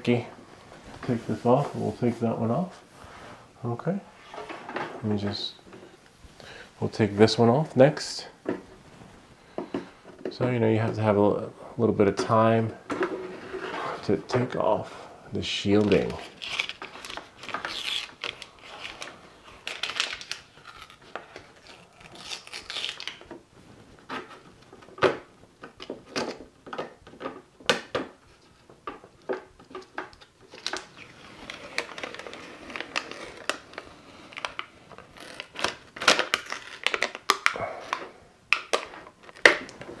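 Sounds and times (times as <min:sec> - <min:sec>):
plastic film crinkling: 0:15.6 - 0:26.5, 0:29.6 - 0:38.0.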